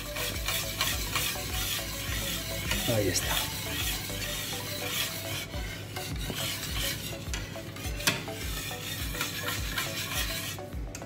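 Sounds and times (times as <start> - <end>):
whisk wires clicking against bowl: 0.0 - 5.1
whisk beating batter: 0.0 - 11.0.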